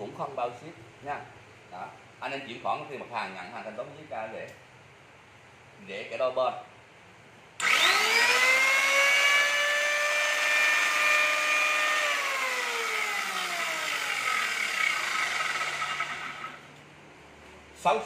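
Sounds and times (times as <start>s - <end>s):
electric planer whine cutting wood: 7.6s - 16.6s.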